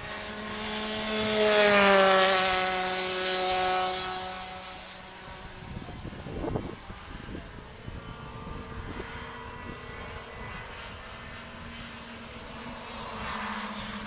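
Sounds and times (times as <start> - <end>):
kart engine droning: 0.0 - 14.0.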